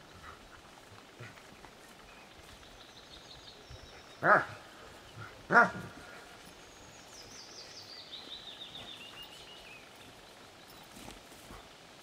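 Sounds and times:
dog barking: 4.2s - 4.6s, 5.5s - 5.9s.

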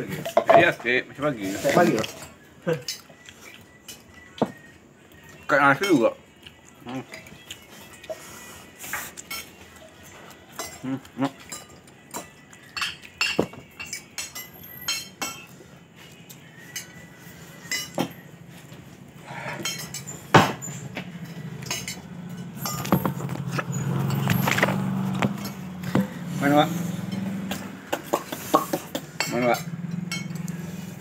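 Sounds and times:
cutlery clinking on a plate: 1.7s - 4.7s, 8.9s - 15.6s, 17.6s - 18.2s, 19.5s - 25.6s, 27.0s - 30.6s.

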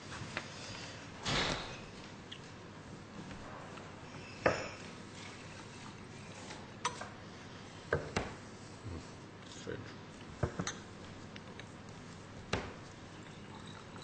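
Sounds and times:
low room noise: 0.0s - 14.0s
glassware knocking and clinking: 4.4s - 4.8s.

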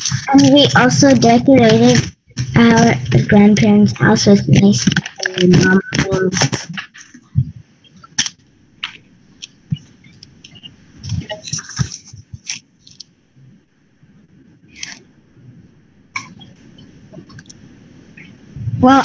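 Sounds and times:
faint low hum: 0.0s - 19.0s.

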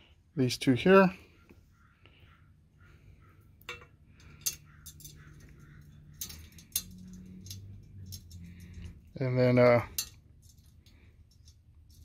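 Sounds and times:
small metal hardware clinking: 3.6s - 9.1s, 9.7s - 12.0s.

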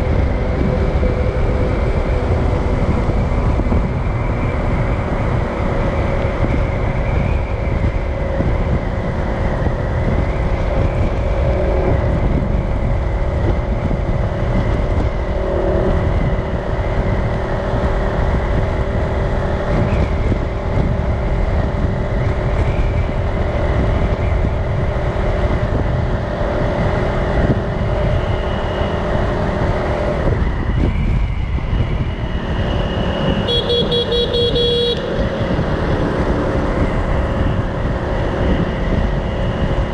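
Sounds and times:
street traffic rumble: 0.0s - 39.9s
car horn beep: 33.4s - 35.2s.

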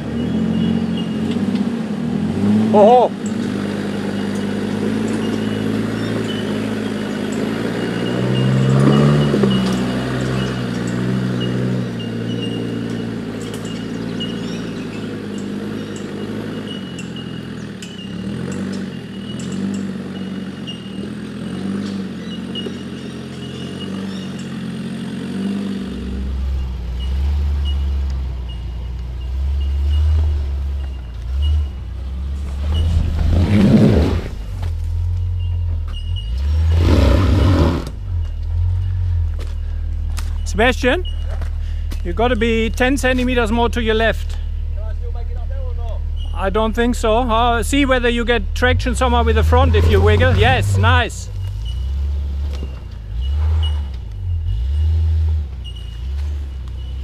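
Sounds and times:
engine revving under load: 0.0s - 57.0s
deep heavy rumble: 31.2s - 54.6s.

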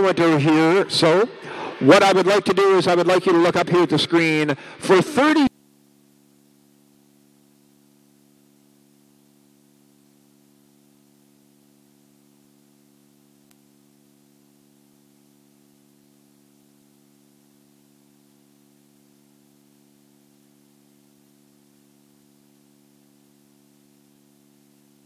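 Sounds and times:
low hum: 5.5s - 25.0s.

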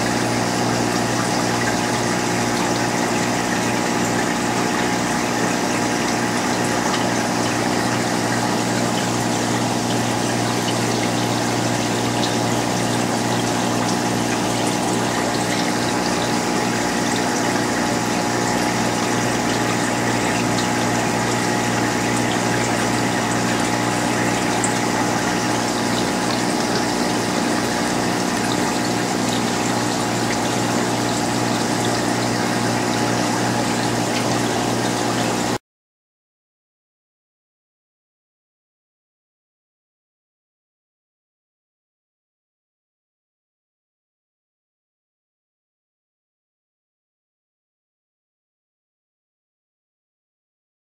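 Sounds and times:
aquarium pump humming: 0.0s - 35.6s.

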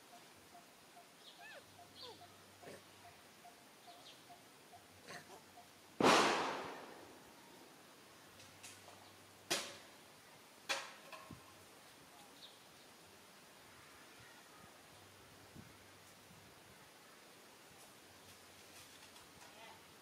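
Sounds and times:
faint background hiss: 0.0s - 20.0s
sharp cracks or bangs: 6.0s - 7.1s.

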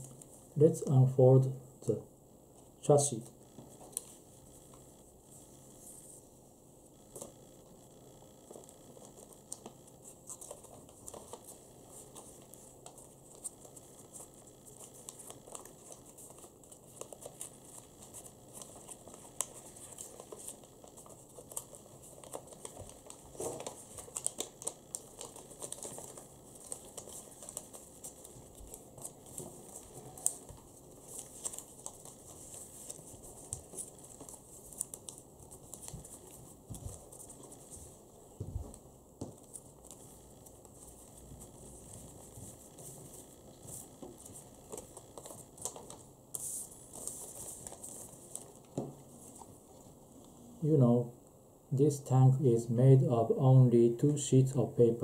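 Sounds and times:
paper crinkling and rustling: 8.4s - 50.0s.

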